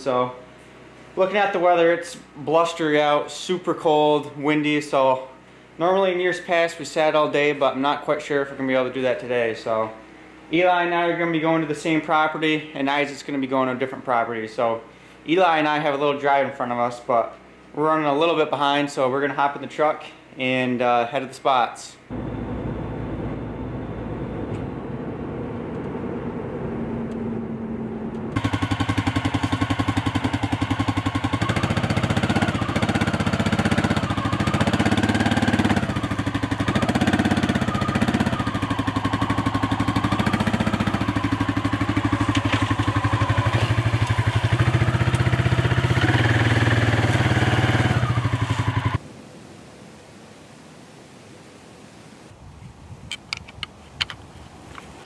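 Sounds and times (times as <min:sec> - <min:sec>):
atv engine revving: 0:22.1 - 0:49.0
engine idling: 0:22.1 - 0:49.0.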